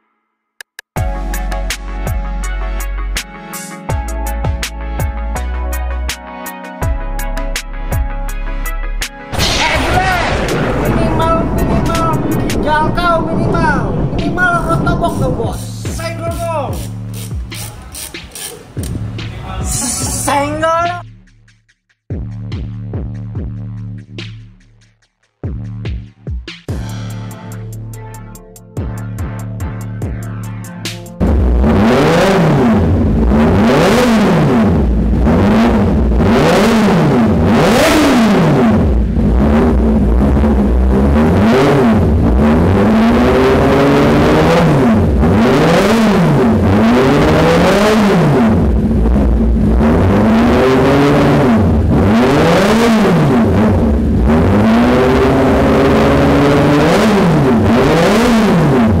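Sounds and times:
motorcycle engine revving: 31.2 - 59.0.

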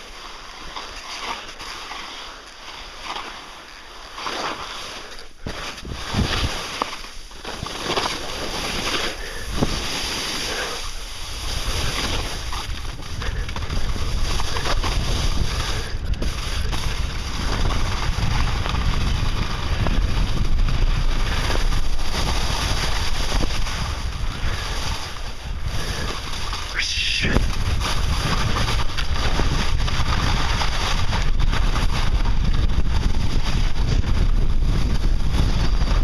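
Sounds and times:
skis scraping over snow: 0.0 - 36.0
wind buffeting microphone: 9.4 - 36.0.

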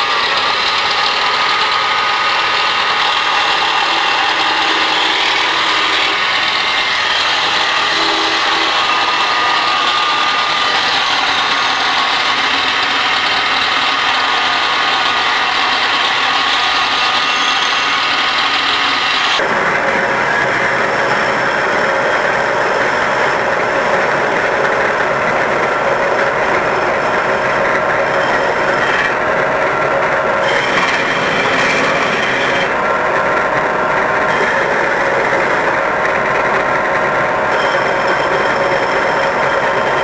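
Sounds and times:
lathe motor hum: 0.0 - 19.6.

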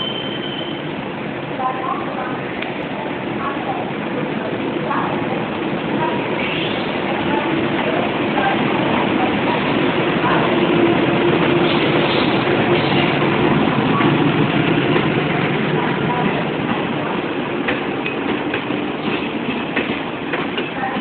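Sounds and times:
electric locomotive hum: 0.0 - 21.0.

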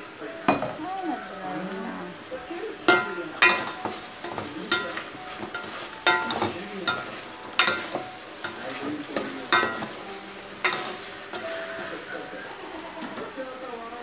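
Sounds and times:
chicken sizzling: 0.0 - 14.0
spatula knocking against pot: 2.9 - 11.9.

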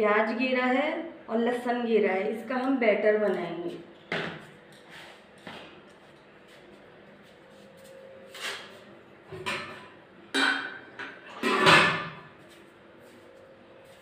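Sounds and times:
metal pots and utensils clanking: 9.3 - 12.2.

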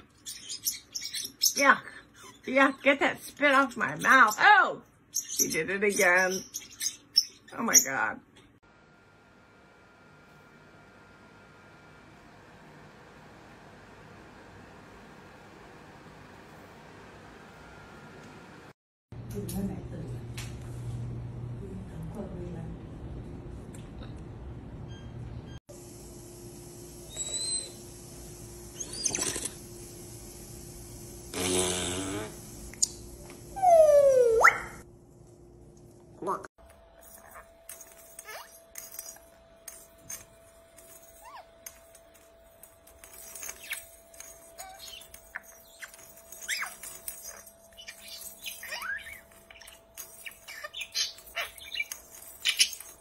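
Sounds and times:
parrot calling: 43.5 - 53.0.

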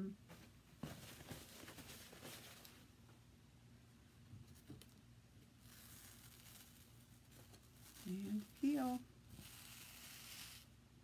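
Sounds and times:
low room hum: 0.0 - 11.0
hands rustling and rubbing: 0.3 - 2.9, 5.6 - 10.7.

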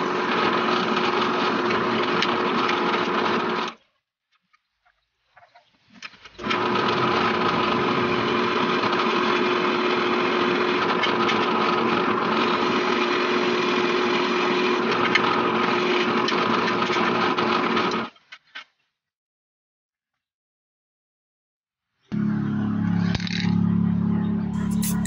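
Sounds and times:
drill press drilling metal: 6.4 - 17.1.

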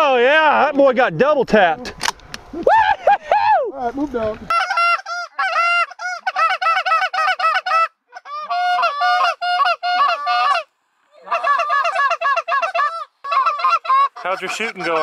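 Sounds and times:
goose call clucks and honks: 4.5 - 15.0.

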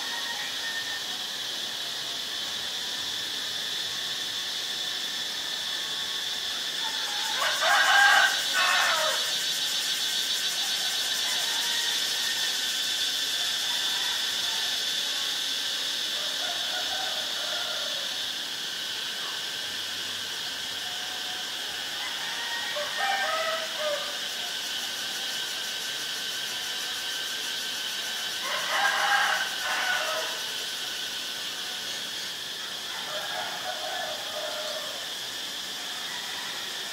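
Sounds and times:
insect chorus drone: 0.0 - 36.9.

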